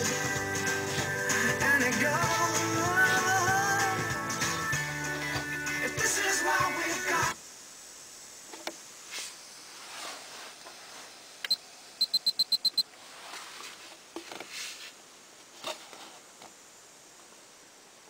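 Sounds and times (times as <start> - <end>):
short high electronic beeps: 12.0 - 12.8.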